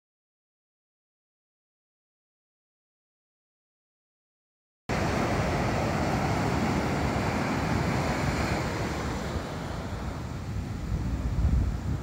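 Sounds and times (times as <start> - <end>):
ocean surf on sand beach: 4.9 - 12.0
wind rumbling on microphone: 4.9 - 12.0.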